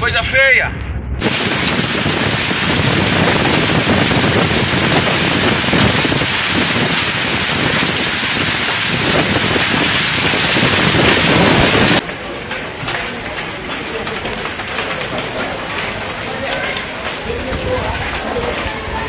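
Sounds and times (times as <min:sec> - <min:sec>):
hail and rain pelting: 0:01.2 - 0:12.0, 0:12.9 - 0:19.0
wind gusts buffeting microphone: 0:01.2 - 0:12.0, 0:17.1 - 0:19.0.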